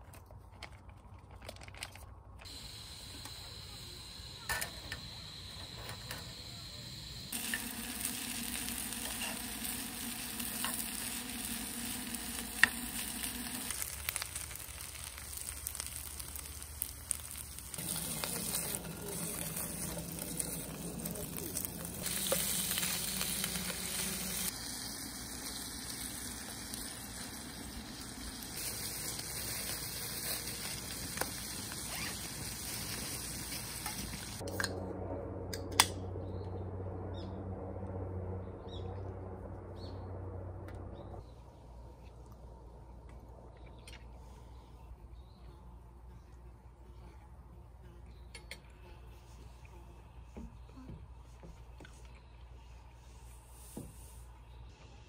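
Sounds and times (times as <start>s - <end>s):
food sizzling in a pan: 7.3s - 34.4s.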